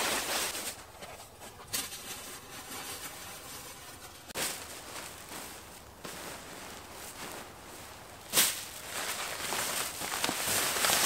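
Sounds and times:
crinkly reflective ground sheet: 0.0s - 11.0s
nylon sleeping gear rustling: 4.3s - 11.0s.

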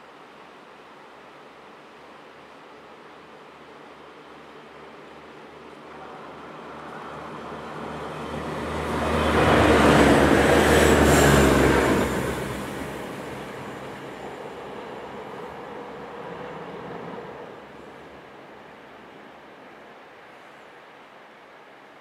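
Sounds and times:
diesel train passing: 5.5s - 19.1s.

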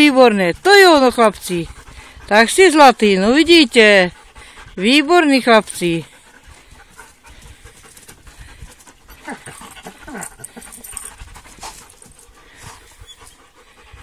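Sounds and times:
dogs panting: 0.0s - 14.0s.

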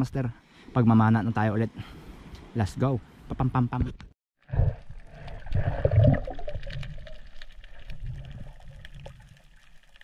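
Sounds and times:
muffled underwater rushing: 4.5s - 10.0s.

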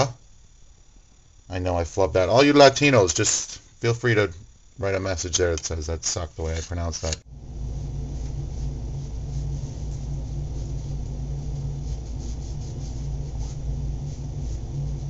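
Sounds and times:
deep rumble: 7.3s - 15.0s
hand scrubbing canvas: 7.7s - 15.0s.

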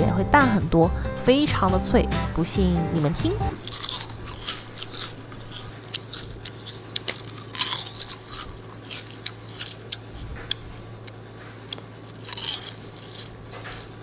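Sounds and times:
kale chips crackling and crunching: 3.6s - 10.0s, 12.0s - 13.4s.

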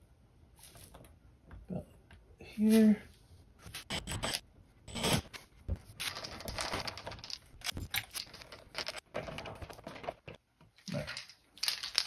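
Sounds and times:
clicks and scraping: 3.6s - 12.0s.

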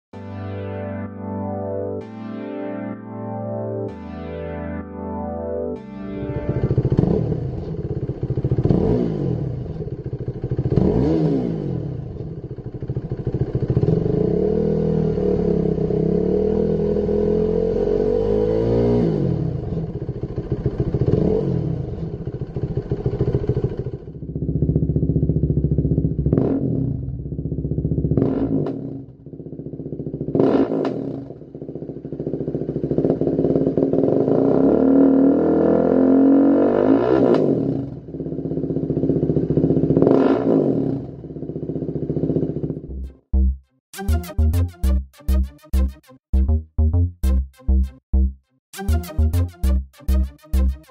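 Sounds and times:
motorcycle engine revving: 6.2s - 43.5s.

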